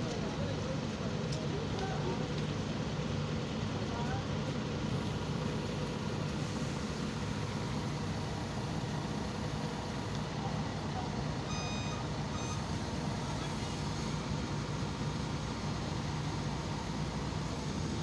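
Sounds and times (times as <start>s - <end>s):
heavy machinery humming: 0.0s - 18.0s
high-pitched beep: 11.5s - 12.7s.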